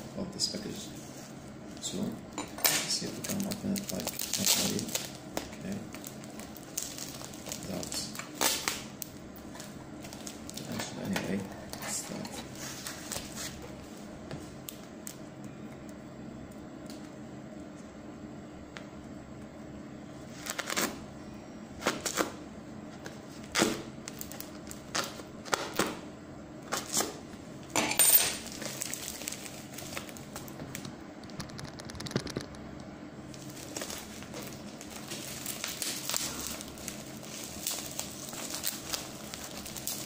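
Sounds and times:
tape and wrapping crackling: 0.5 - 17.2, 20.2 - 21.0, 21.8 - 26.0, 26.7 - 27.2, 28.4 - 40.0
blade cutting packing tape: 3.1 - 5.1, 23.5 - 26.0.

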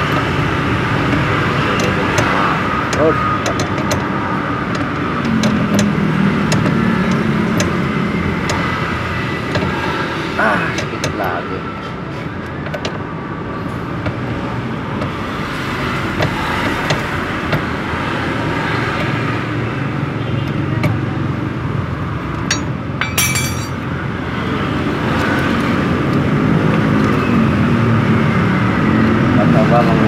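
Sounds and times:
road traffic noise: 0.0 - 30.0
metallic clink: 22.5 - 23.8.

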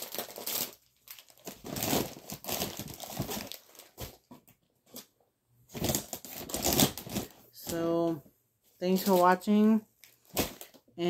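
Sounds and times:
packaging crinkling and rustling: 0.0 - 5.1, 5.7 - 7.8, 10.0 - 10.8.

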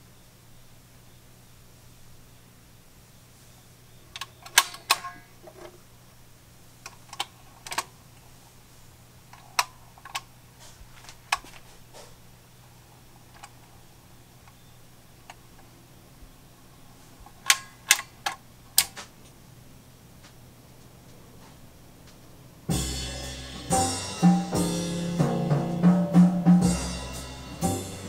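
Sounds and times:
mechanical clicks: 4.1 - 5.7, 6.8 - 7.9, 17.2 - 19.0
turntable low hum: 22.7 - 28.0.

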